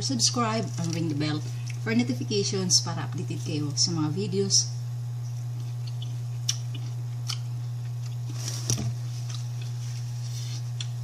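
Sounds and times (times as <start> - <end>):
person chewing food: 0.8 - 1.8, 5.4 - 11.0.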